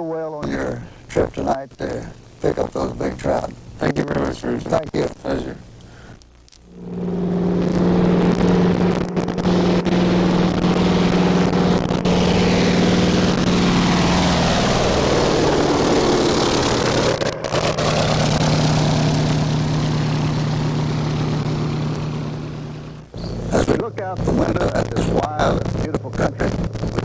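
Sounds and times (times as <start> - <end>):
small plane engine and propeller: 6.7 - 27.0.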